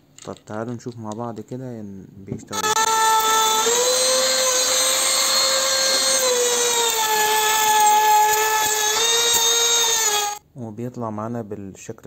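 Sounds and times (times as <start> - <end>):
router motor high whine: 2.6 - 10.4.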